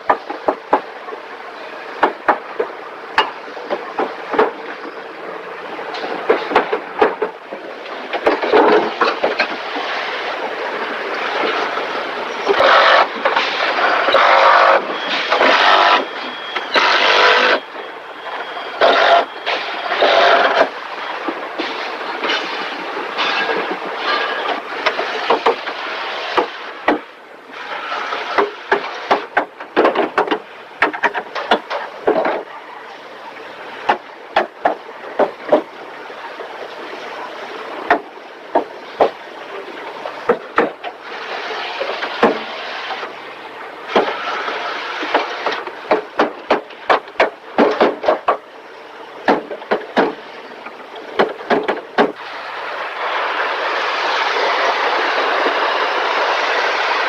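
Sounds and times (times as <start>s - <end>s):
sharp knocks and clatter: 0.0s - 0.9s, 2.0s - 4.6s, 5.9s - 9.9s, 21.3s - 27.1s, 28.2s - 32.5s, 33.9s - 35.7s, 40.3s - 41.0s, 41.8s - 43.1s, 43.9s - 48.5s, 49.2s - 50.3s, 51.0s - 52.2s
factory din: 0.0s - 57.0s.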